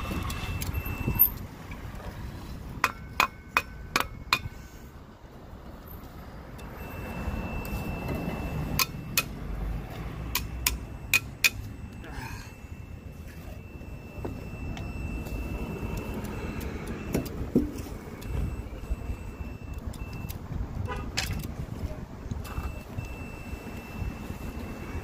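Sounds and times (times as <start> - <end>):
continuity tester high tone: 6.6 - 9.4, 10.3 - 20.4, 22.5 - 25.0
metal clicks and taps: 8.7 - 11.7.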